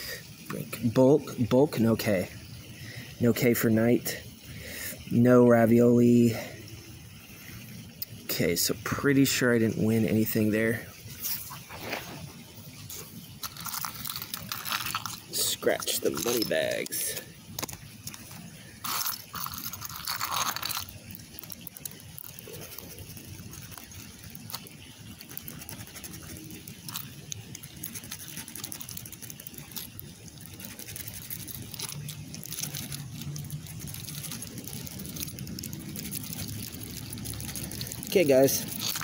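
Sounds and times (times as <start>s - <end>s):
scratching lottery ticket: 12.8s - 39.0s.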